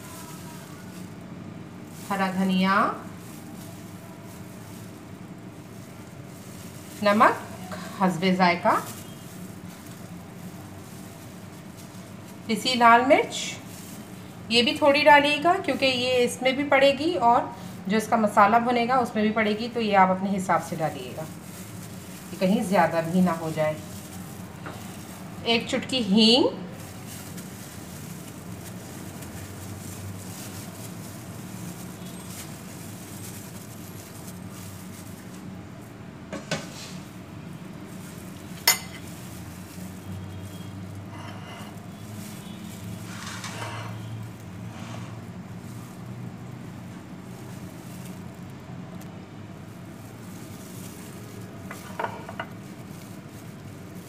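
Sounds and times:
faint rustles: 0.0s - 16.4s, 20.3s - 36.0s, 36.6s - 54.0s
low background hum: 0.0s - 54.0s
metal spoon clinking on glass bowl: 38.6s - 39.0s.

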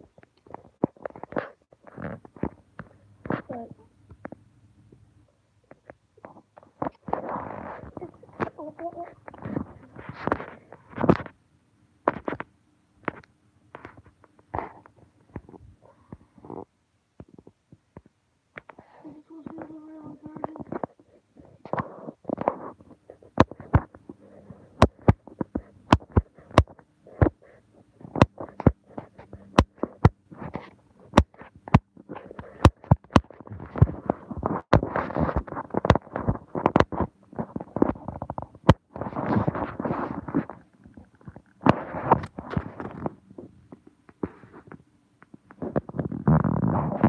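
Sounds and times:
rubbing and rustling: 5.7s - 11.4s, 18.6s - 47.0s.

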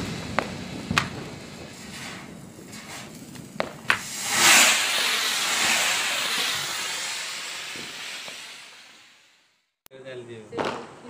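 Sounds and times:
firework hissing: 0.0s - 9.6s
sharp pops: 0.4s - 1.3s, 2.0s - 9.2s.

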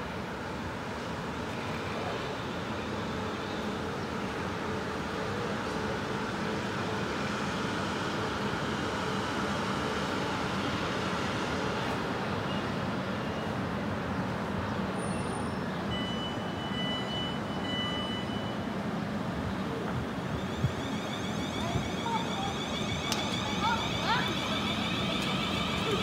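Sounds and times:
electric train rumbling: 0.0s - 14.9s, 18.5s - 26.0s
high steady tone: 20.2s - 26.0s.

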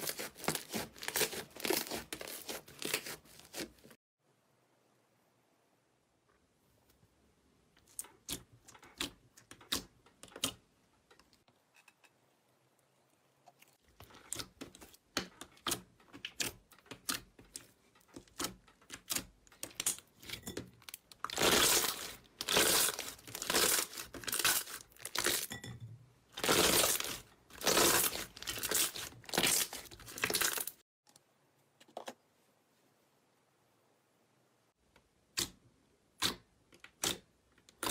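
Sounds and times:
slime crunching squelches: 0.0s - 4.0s, 13.2s - 25.6s, 26.3s - 30.8s
crunchy slime crackling and popping: 18.3s - 25.5s, 26.4s - 30.8s.

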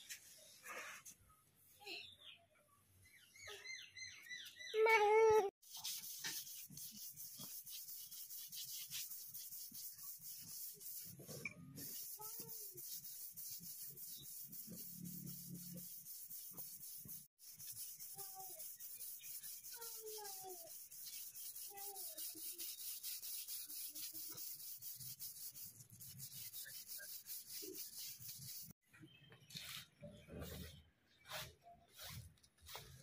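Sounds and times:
brush scrubbing a plastic mat: 5.6s - 28.8s.

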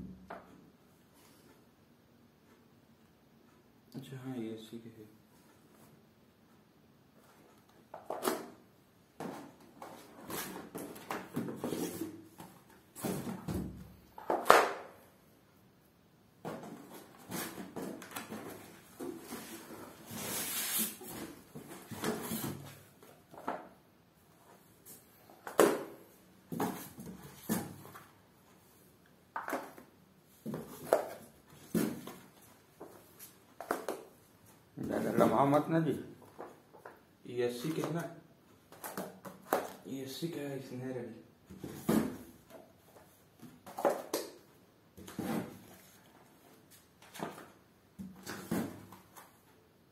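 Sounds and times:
books handled on concrete floor: 9.2s - 13.6s, 45.0s - 49.5s.

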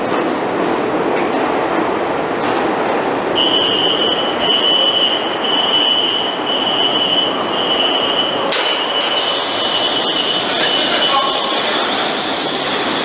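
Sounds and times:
subway train rumble: 0.0s - 13.0s
high alarm beeps: 3.4s - 11.6s.

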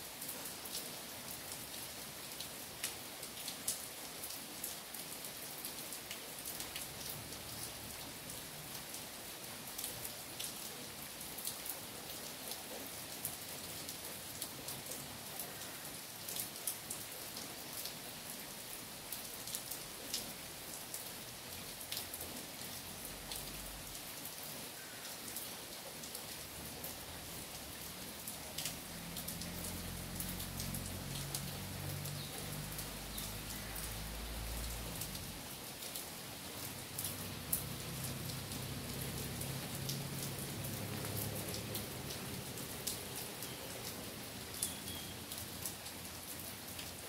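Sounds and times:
light rain on trees: 0.0s - 47.0s
sharp water drips: 26.0s - 47.0s.

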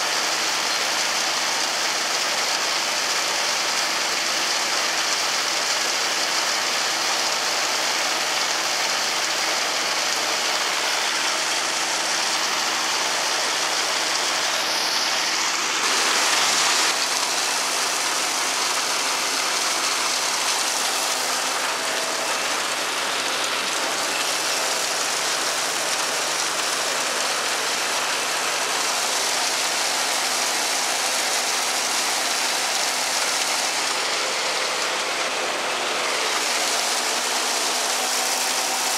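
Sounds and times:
silage blower machine hum: 6.0s - 38.9s.

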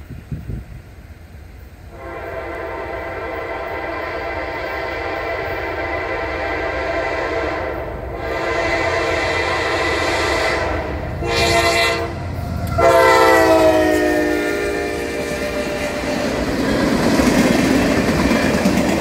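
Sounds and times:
rumble of rolling train: 0.0s - 19.0s
locomotive air horn: 1.9s - 16.5s.

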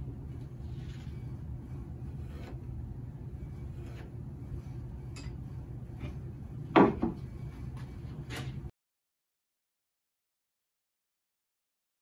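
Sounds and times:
steady low hum: 0.0s - 8.7s
wooden boards knocking: 6.7s - 7.2s.

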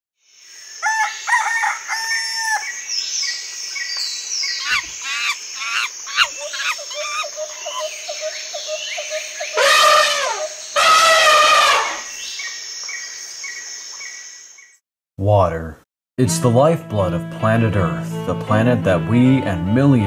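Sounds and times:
high insect drone: 0.2s - 14.5s
birds chirping and calling: 0.9s - 14.8s
harsh drawn-out animal call: 4.6s - 12.1s.

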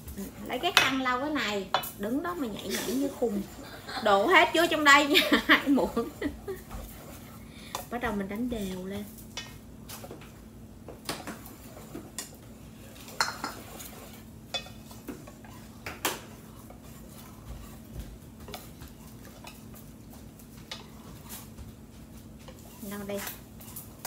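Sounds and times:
faint steady hum: 0.0s - 24.0s
whisk beating batter in bowl: 0.3s - 10.1s, 11.0s - 24.0s
whisk clinking against metal bowl: 13.0s - 15.4s.

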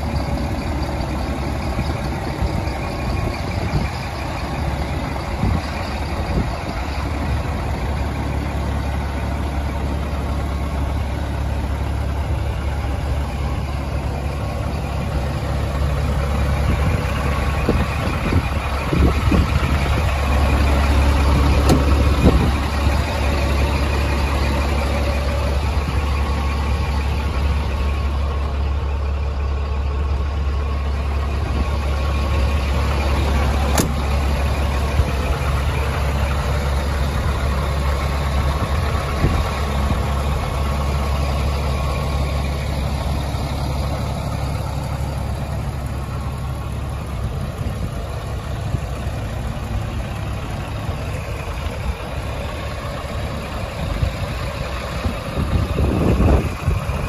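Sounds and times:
diesel truck engine idling: 0.0s - 57.0s.

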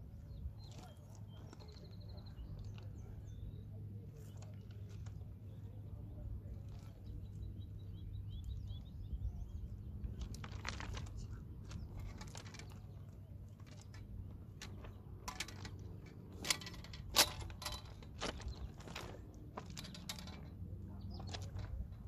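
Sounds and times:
steady low rumble: 0.0s - 22.0s
fishing gear rustling and clicking: 10.1s - 20.6s.

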